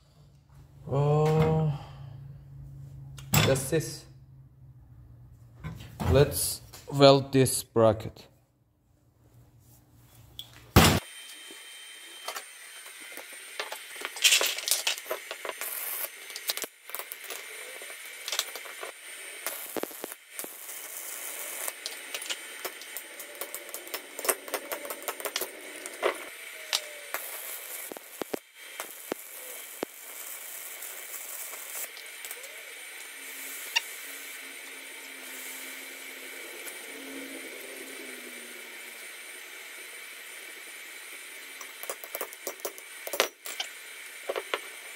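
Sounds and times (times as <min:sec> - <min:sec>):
welding arc crackling: 0:10.7 - 0:44.9.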